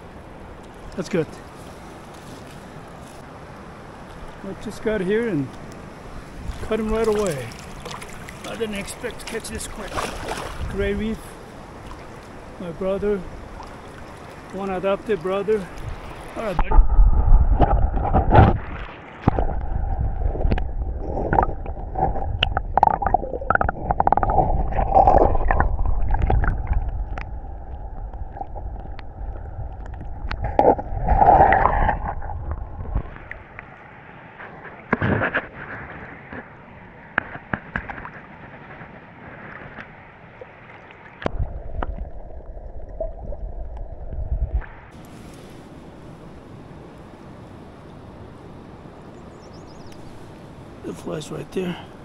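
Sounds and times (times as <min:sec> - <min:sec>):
underwater river gurgling: 0:00.0 - 0:52.0
heavy low rumble: 0:16.5 - 0:18.7, 0:19.3 - 0:33.5.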